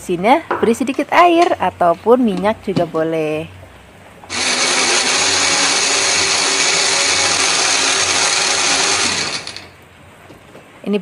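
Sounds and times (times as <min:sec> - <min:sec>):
blender grinding: 0:04.3 - 0:09.7.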